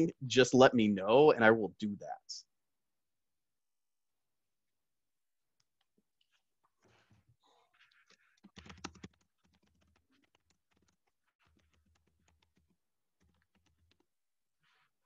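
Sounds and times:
typing on a keyboard: 0:07.9 - 0:14.2.

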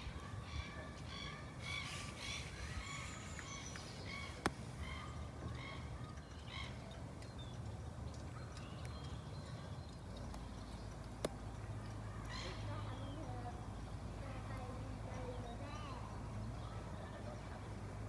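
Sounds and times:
birds making harsh calls: 0:00.0 - 0:09.9, 0:11.6 - 0:13.8.

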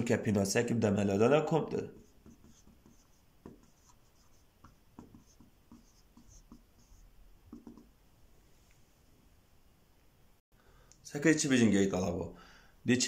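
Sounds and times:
marker squeaking on whiteboard: 0:01.7 - 0:07.9.

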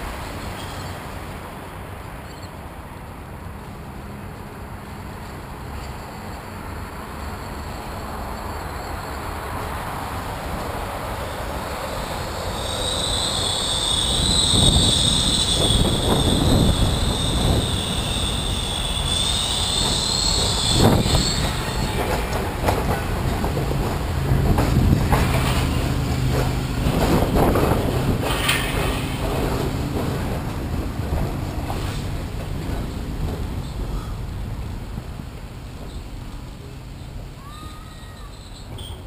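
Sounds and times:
tram rumble: 0:00.0 - 0:39.0
high wavering squeal: 0:11.8 - 0:22.4.

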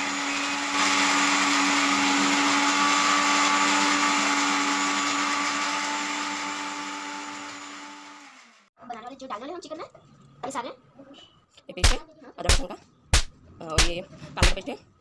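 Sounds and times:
mixer grinder motor whine: 0:00.0 - 0:08.7.

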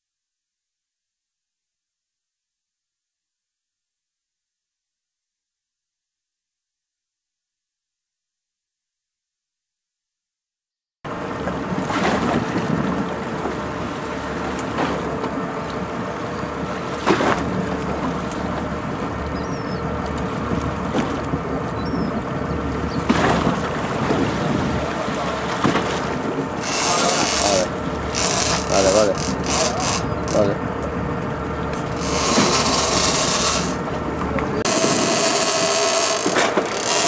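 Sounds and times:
boat engine running: 0:11.1 - 0:37.0.

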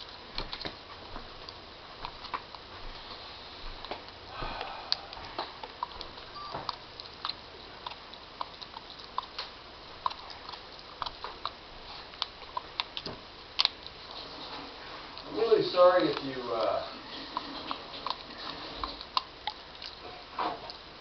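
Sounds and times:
dog chewing on a straw: 0:00.0 - 0:21.0.

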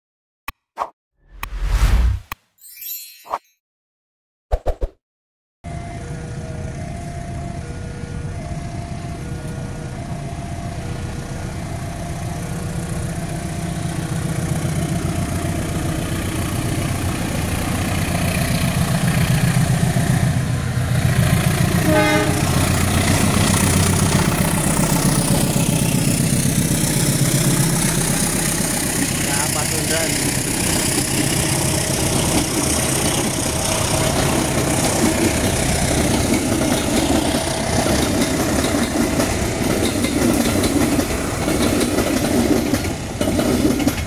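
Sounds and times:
diesel locomotive engine rumble: 0:05.7 - 0:44.0
train coaches rushing past: 0:12.6 - 0:44.0
train horn toot: 0:21.8 - 0:22.9.

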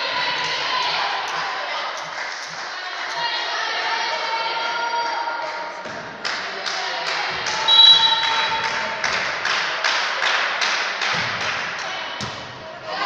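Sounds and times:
rhythmic hand clapping: 0:00.4 - 0:03.4, 0:05.1 - 0:12.2.

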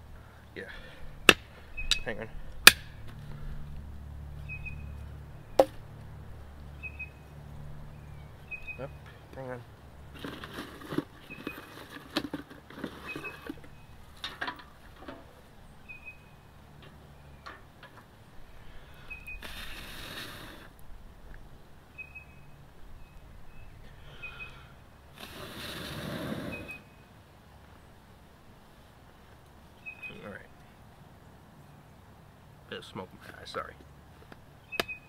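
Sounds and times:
person blowing on fire: 0:18.6 - 0:20.8, 0:24.0 - 0:26.9.

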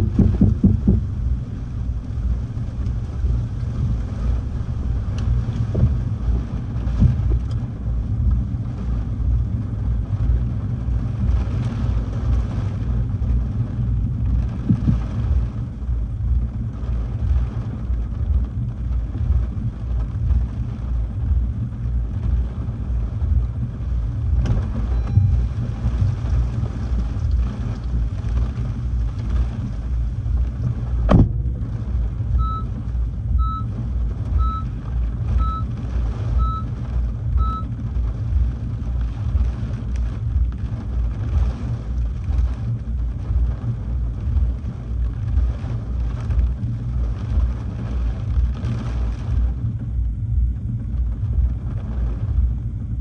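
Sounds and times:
faint knocks: 0:00.0 - 0:01.1
strong wind buffeting microphone: 0:00.0 - 0:53.0.

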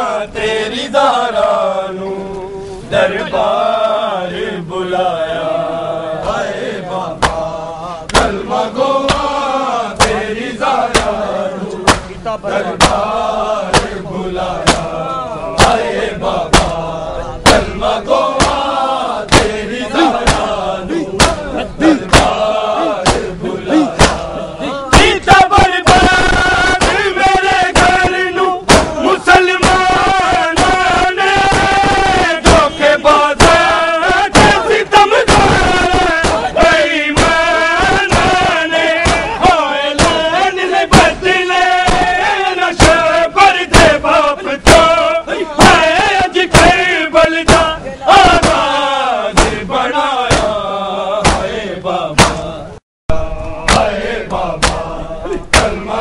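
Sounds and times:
men chanting in unison: 0:00.0 - 0:56.0
chest-beating slaps: 0:07.2 - 0:08.4, 0:09.0 - 0:09.4, 0:10.0 - 0:11.2, 0:11.8 - 0:12.2, 0:12.8 - 0:13.1, 0:13.7 - 0:14.0, 0:14.6 - 0:14.9, 0:15.6 - 0:15.9, 0:16.5 - 0:32.8, 0:33.4 - 0:40.3, 0:41.8 - 0:42.2, 0:42.8 - 0:44.0, 0:44.6 - 0:45.0, 0:45.6 - 0:46.8, 0:47.4 - 0:48.7, 0:49.4 - 0:49.7, 0:50.3 - 0:50.6, 0:51.2 - 0:51.5, 0:52.2 - 0:52.6, 0:53.4 - 0:55.8.

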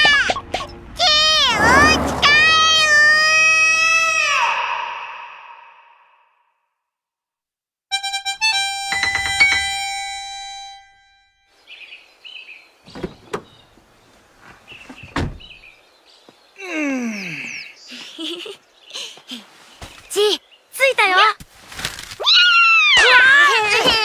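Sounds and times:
voice sliding down in pitch: 0:01.4 - 0:03.5.

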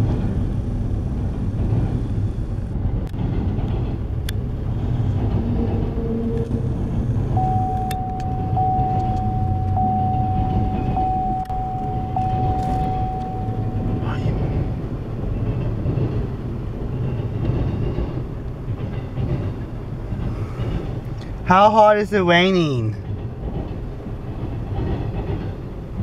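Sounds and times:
freight train wheels rumbling: 0:00.0 - 0:26.0
steady high tone: 0:07.3 - 0:15.0.

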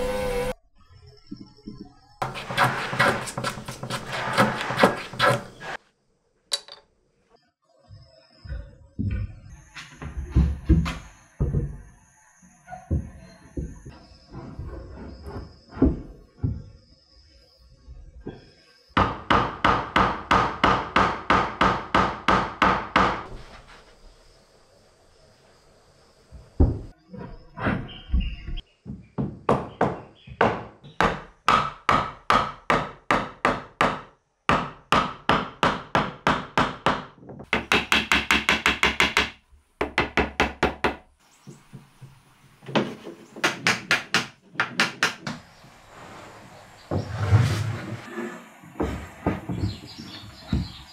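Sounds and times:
hammer knocking wood: 0:28.9 - 0:41.0, 0:42.7 - 0:45.4.

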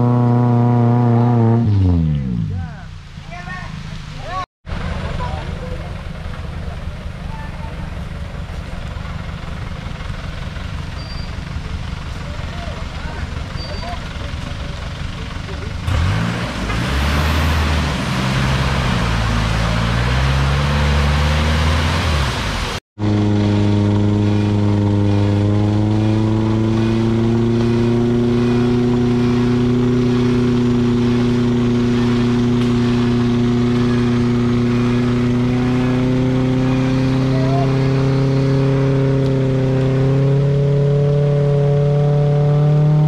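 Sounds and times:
truck engine revving: 0:00.0 - 0:03.3, 0:04.0 - 0:43.0
mud splashing: 0:03.7 - 0:43.0.

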